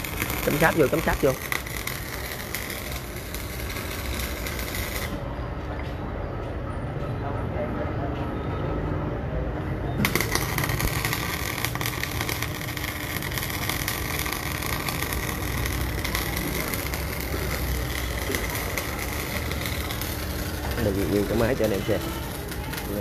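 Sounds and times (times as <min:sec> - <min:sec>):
welding arc crackling: 0:00.0 - 0:05.2, 0:10.0 - 0:23.0.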